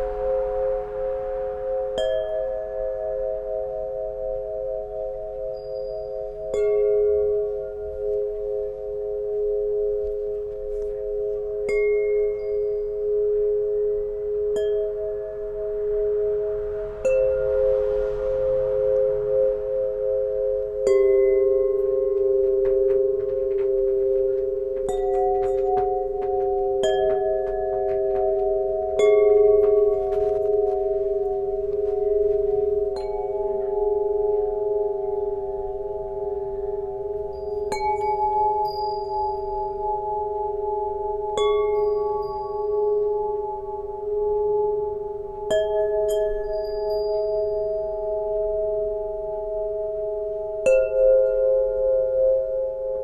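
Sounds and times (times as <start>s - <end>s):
tuning pipes ringing: 0.0s - 53.0s.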